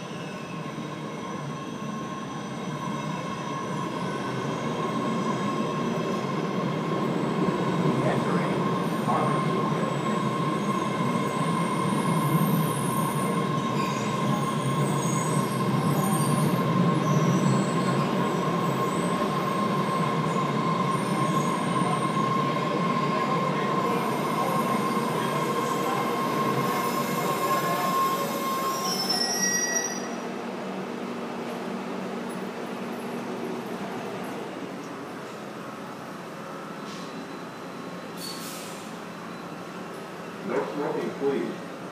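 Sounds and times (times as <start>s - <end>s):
subway train rumble: 0.0s - 41.9s
brief high squeal: 12.9s - 15.3s, 26.7s - 30.2s, 36.8s - 39.6s.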